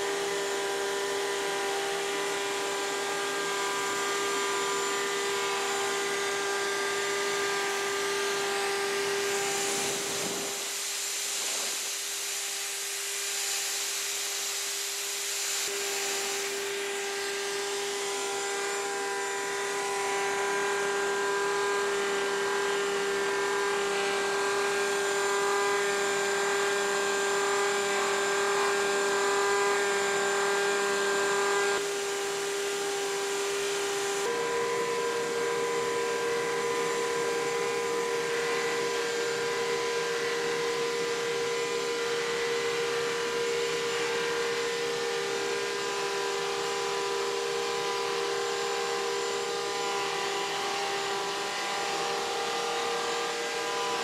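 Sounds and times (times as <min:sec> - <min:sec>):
dust extractor running: 0:00.0 - 0:54.0
wood router whining: 0:00.0 - 0:54.0.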